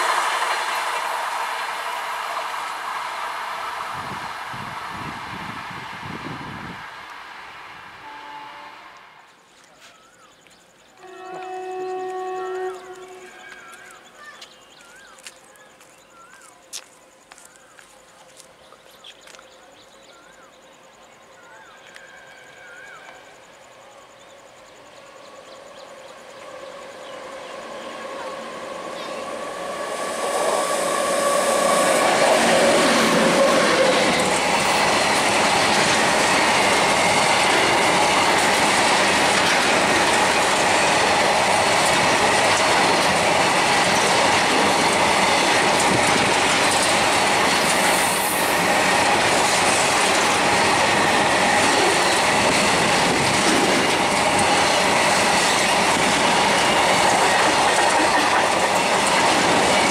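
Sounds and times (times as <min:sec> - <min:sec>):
freight train passing: 0:00.0 - 0:09.5, 0:10.7 - 0:59.9
wheels clacking over rail joints: 0:27.4 - 0:59.9.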